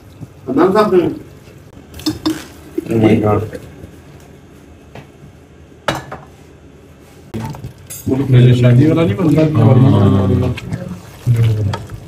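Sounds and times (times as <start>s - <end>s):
glassware clinking on counter: 5.9s - 6.3s.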